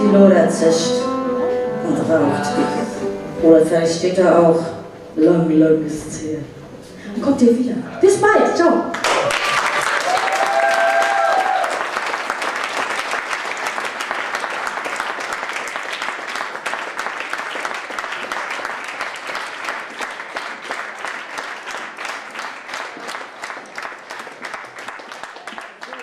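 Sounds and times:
audience applauding: 0:08.9 - 0:26.0.

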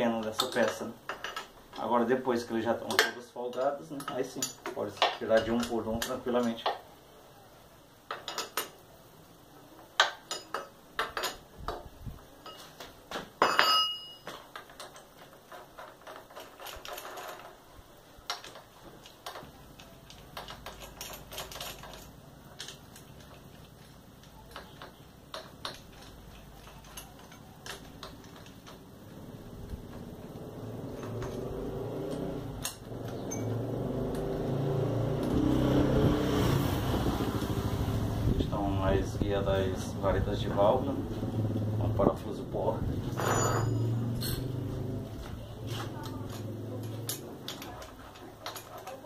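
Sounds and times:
socket wrench clinking on metal: 0:02.8 - 0:06.8, 0:10.0 - 0:11.8, 0:13.4 - 0:17.5, 0:18.3 - 0:28.9, 0:29.8 - 0:35.4, 0:43.1 - 0:45.0.

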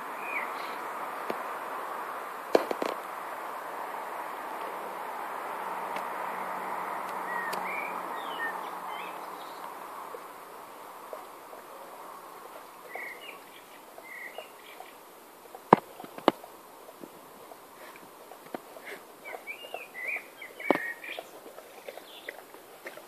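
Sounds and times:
small birds chirping: 0:00.0 - 0:03.6, 0:05.8 - 0:23.0
steady hiss: 0:00.0 - 0:23.0.

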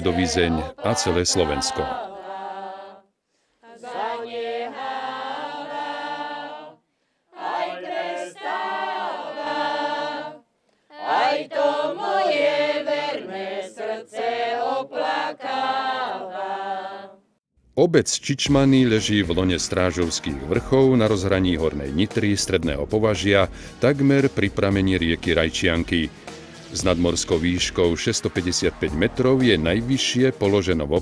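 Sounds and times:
group singing folk song a cappella: 0:00.0 - 0:17.2.

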